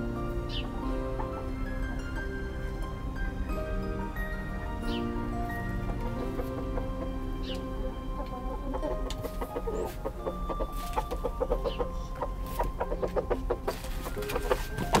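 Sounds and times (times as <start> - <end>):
hen clucking: 5.8 - 15.0.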